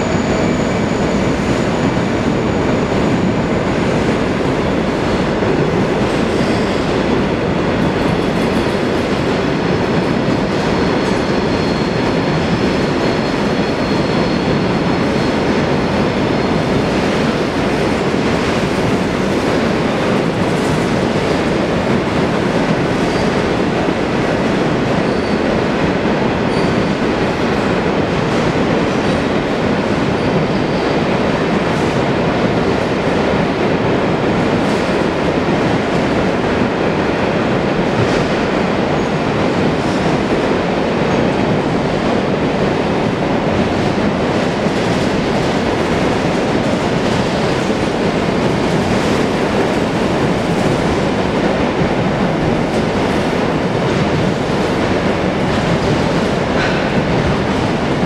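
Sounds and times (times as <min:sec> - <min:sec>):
train wheels rumbling on rails: 0:00.0 - 0:58.0
faint high wheel squeal: 0:10.8 - 0:15.5, 0:25.0 - 0:25.5, 0:26.5 - 0:27.0.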